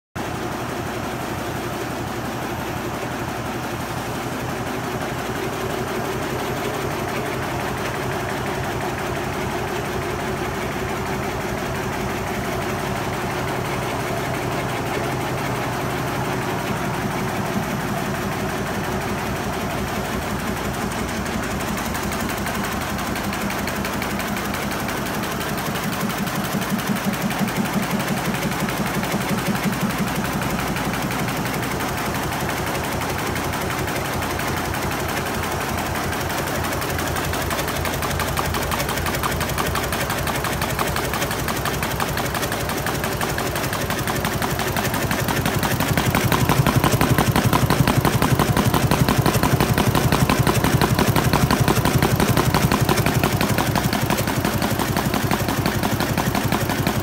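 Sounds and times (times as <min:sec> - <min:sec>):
quilting machine stitching: 0:19.8 - 0:57.0.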